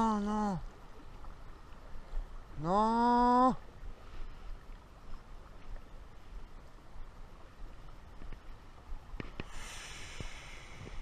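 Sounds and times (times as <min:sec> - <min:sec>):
river current flowing: 0:00.0 - 0:11.0
wind rumble on microphone: 0:00.7 - 0:11.0
bright hiss: 0:09.4 - 0:11.0.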